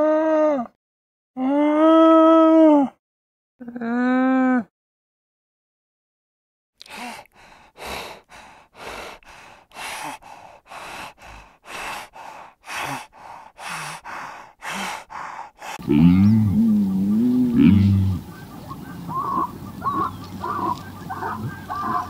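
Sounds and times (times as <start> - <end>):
hyena panting: 6.9 - 16.0, 16.6 - 22.0.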